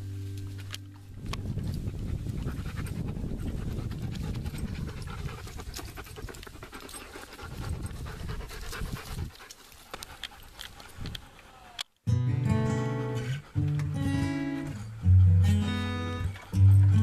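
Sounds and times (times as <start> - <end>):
dog panting: 1.6 - 11.5.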